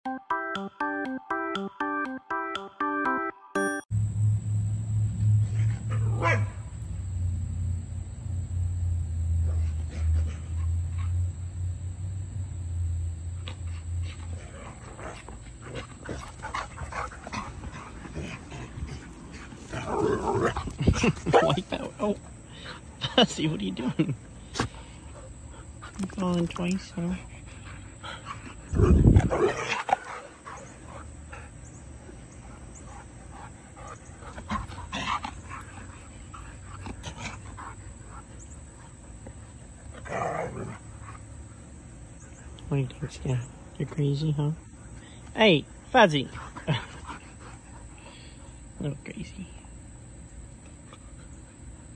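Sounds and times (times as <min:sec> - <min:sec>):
low steady hum: 0:03.9 - 0:51.9
dogs vocalizing during play: 0:13.4 - 0:23.0, 0:24.2 - 0:42.6, 0:44.6 - 0:48.8.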